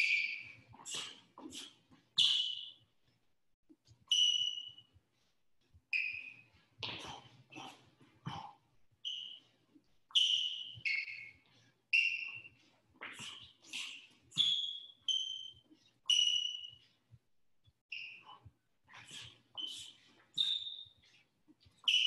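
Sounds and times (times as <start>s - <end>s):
sneakers squeaking on hardwood: 0.0s - 2.8s, 5.9s - 16.8s.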